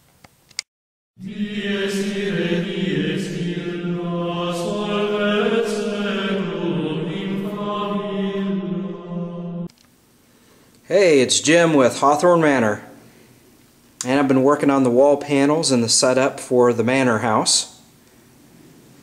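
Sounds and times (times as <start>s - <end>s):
chanting voices: 1.2s - 9.7s
low drone: 1.2s - 9.7s.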